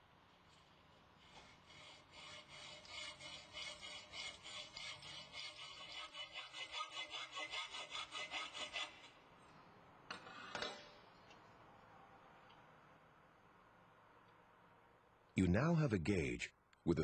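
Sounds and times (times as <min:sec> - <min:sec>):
hacksaw cutting metal conduit: 0:01.2 - 0:09.2.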